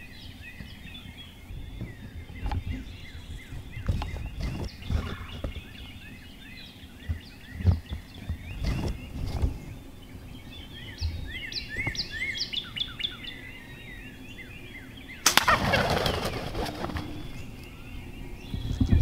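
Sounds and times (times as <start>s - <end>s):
songbirds chirping: 0.0s - 19.0s
heavy wing flapping and thrashing: 3.5s - 5.8s, 7.1s - 9.8s, 15.3s - 17.4s.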